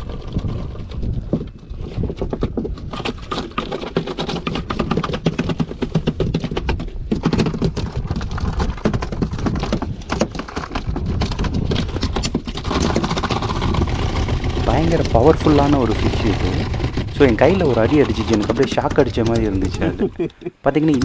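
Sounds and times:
low rumble: 0:13.2 - 0:20.3.

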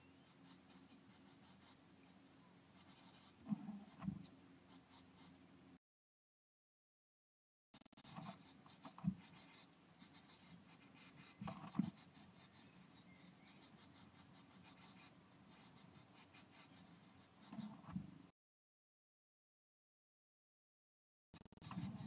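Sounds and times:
faint scratching and rustling in nest: 0:00.0 - 0:05.4, 0:08.0 - 0:18.2, 0:21.4 - 0:22.0.

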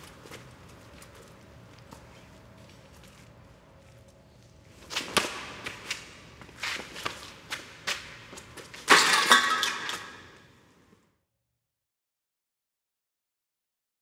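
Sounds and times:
footsteps on gritty concrete: 0:00.0 - 0:08.9.

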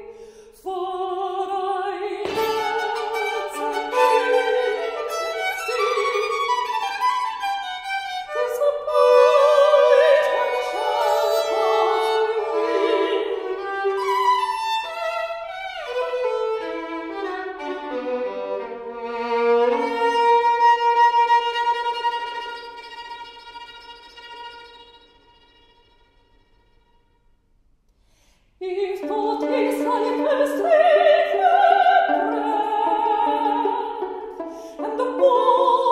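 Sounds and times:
solo violin playing slowly: 0:02.2 - 0:26.9.

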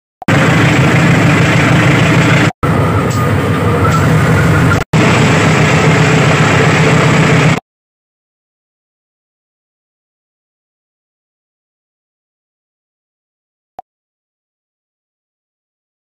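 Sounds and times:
diesel locomotive engine running: 0:00.2 - 0:07.6.

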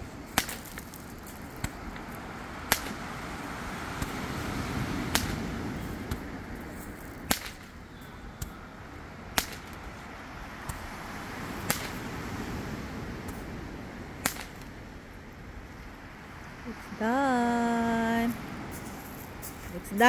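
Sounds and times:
fireworks cracking: 0:00.0 - 0:03.1, 0:05.0 - 0:07.8, 0:09.3 - 0:10.0, 0:11.6 - 0:12.2, 0:14.2 - 0:14.8
surf washing: 0:00.0 - 0:20.0
faint firework pops: 0:05.1 - 0:05.5, 0:07.2 - 0:07.8, 0:09.4 - 0:09.8, 0:11.6 - 0:12.1.

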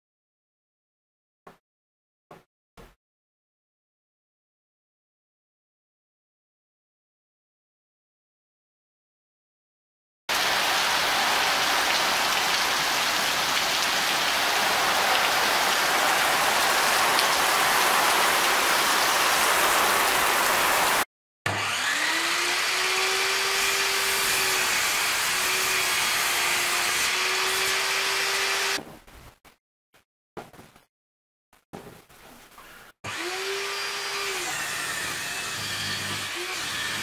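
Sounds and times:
heavy rain falling: 0:10.3 - 0:21.0
table saw ripping wood: 0:14.0 - 0:28.8, 0:33.0 - 0:37.0.

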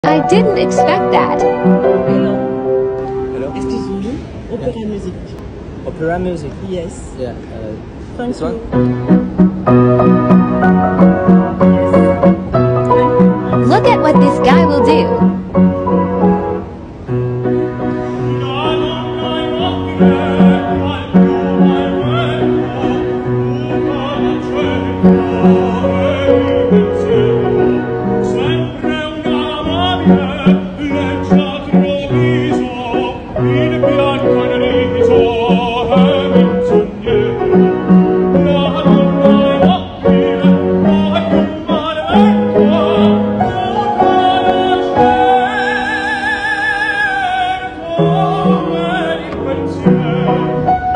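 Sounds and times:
piano accompaniment: 0:00.0 - 0:04.8, 0:08.4 - 0:50.9
man singing opera: 0:18.2 - 0:50.9.

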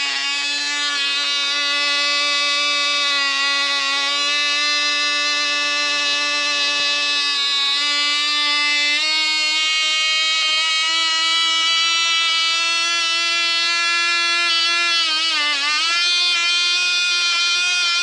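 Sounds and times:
model engine buzzing: 0:00.0 - 0:18.0.

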